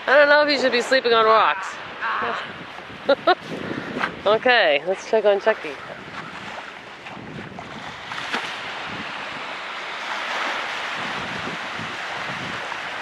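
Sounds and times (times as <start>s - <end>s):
water washing at the shore: 0.0s - 13.0s
wind on the microphone: 0.0s - 13.0s.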